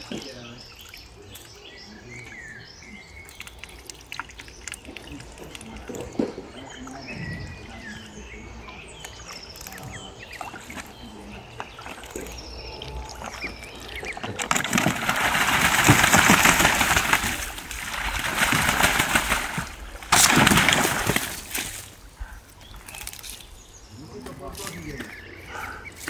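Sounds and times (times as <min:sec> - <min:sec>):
duck splashing in water: 0:03.2 - 0:07.0, 0:09.1 - 0:22.1.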